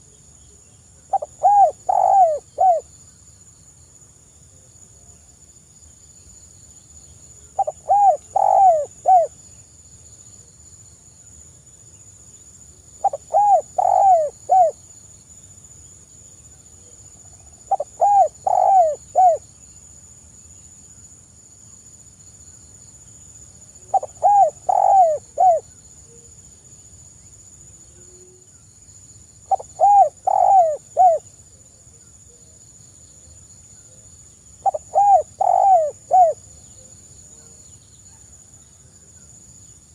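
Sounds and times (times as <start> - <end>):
dove cooing: 1.1 - 2.9, 7.6 - 9.3, 13.0 - 14.8, 17.7 - 19.4, 23.9 - 25.7, 29.5 - 31.3, 34.6 - 36.5.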